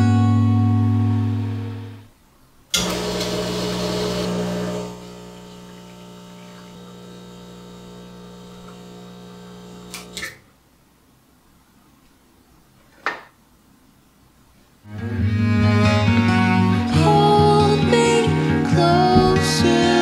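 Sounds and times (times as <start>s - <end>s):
espresso machine pump humming: 2.8s - 10.2s.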